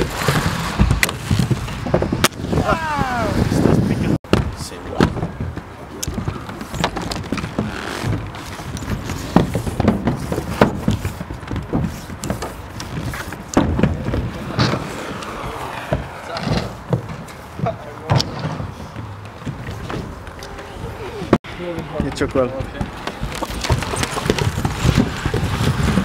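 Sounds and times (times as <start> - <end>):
inline skates clicking on concrete: 0.0 - 2.7, 5.0 - 26.0.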